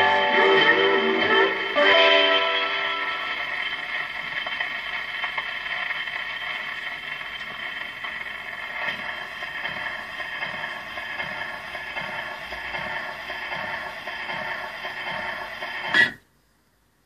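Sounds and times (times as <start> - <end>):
record surface hiss and crackle: 2.6 - 17.0.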